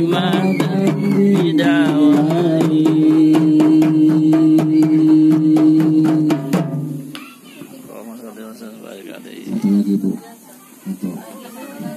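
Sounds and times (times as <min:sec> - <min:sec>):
devotional song singing: 0:00.0 - 0:07.1
frame drums struck: 0:00.0 - 0:07.3.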